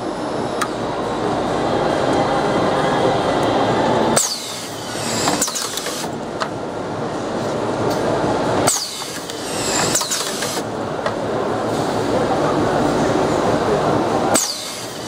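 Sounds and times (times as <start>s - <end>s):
steady machine hum: 0.0s - 15.0s
screwing heads whining: 4.2s - 6.1s, 8.7s - 10.6s, 14.4s - 14.9s
machine clicks: 8.7s - 10.6s.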